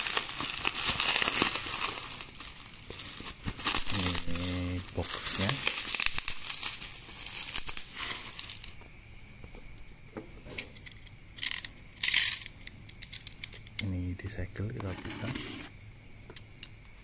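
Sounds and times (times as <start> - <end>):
bubble wrap crinkling: 0.0 - 8.8.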